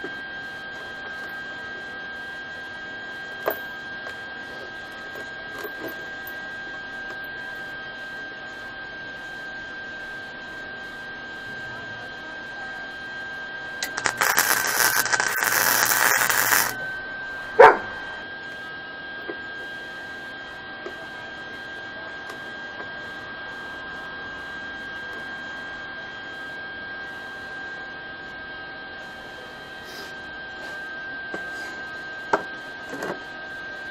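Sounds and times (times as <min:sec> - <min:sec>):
steady high whine: 0:13.3 - 0:20.7
welder arc crackling: 0:13.8 - 0:16.8.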